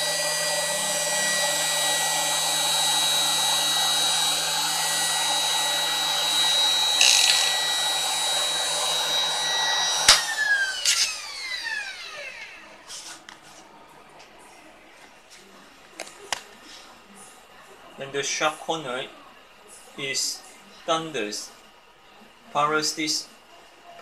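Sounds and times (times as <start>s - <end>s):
router spindle high whine: 0.0s - 12.9s.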